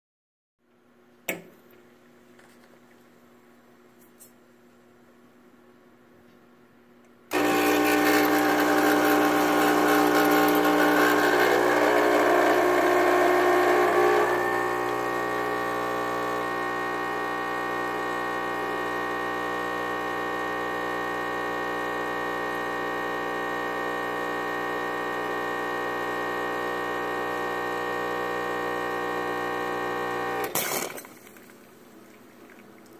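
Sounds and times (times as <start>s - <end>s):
espresso machine pump buzzing: 7.3s - 30.6s.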